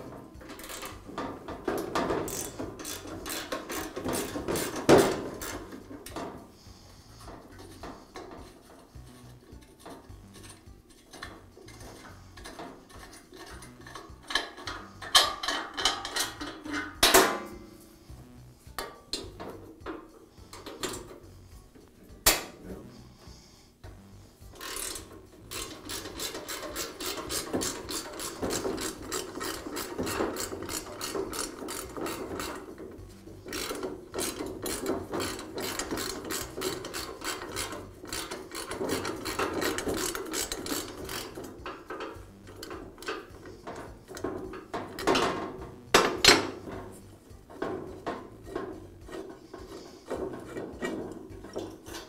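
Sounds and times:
ratchet wrench clicking: 0.4 - 6.3, 7.2 - 17.2, 24.4 - 46.7.

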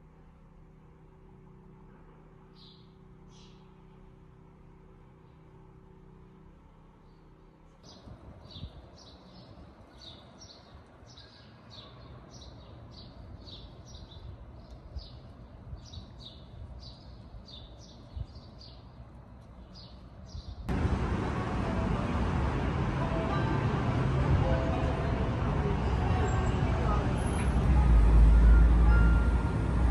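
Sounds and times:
bird chirping: 2.5 - 3.8
loud even background noise: 20.7 - 29.9.

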